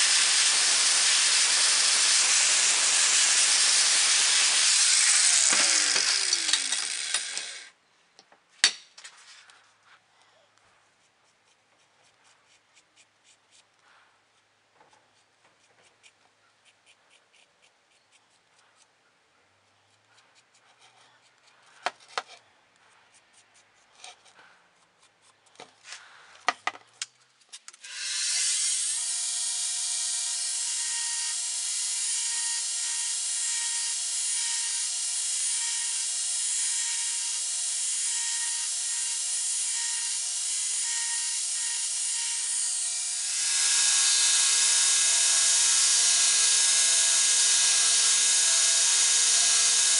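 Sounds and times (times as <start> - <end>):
belt grinder grinding steel: 0.0 - 7.7, 27.8 - 49.9
marker scratching on steel: 19.7 - 25.6.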